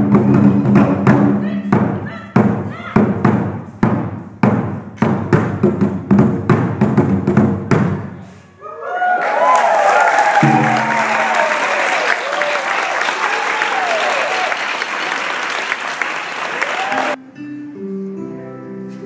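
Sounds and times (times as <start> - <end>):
taiko drums beating: 0.0 - 8.1, 10.4 - 12.1
audience applauding and cheering: 8.6 - 17.2.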